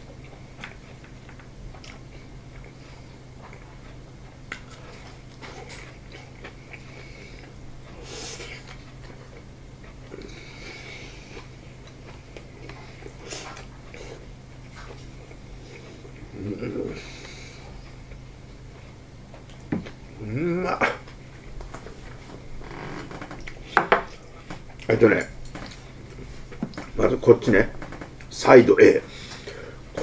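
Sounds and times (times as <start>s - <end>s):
person chewing food: 0.0s - 20.2s, 23.4s - 26.9s
steady low hum: 0.0s - 30.0s.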